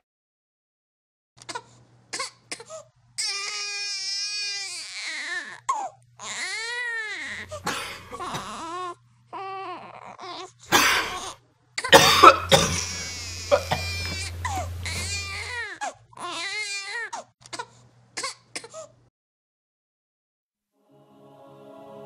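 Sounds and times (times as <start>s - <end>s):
baby crying: 3.2s - 17.7s.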